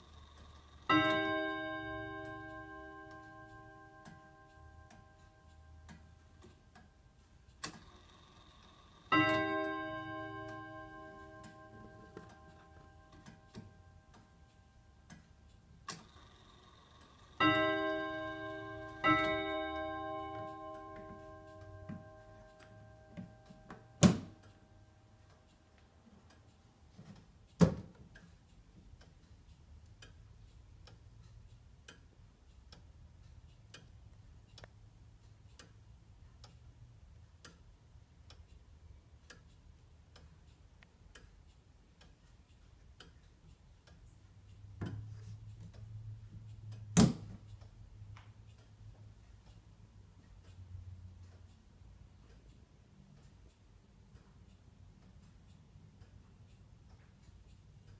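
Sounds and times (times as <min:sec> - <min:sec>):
clock ticking: 0:00.0 - 0:57.9
clock strike note ringing: 0:09.1 - 0:14.1, 0:17.4 - 0:24.5.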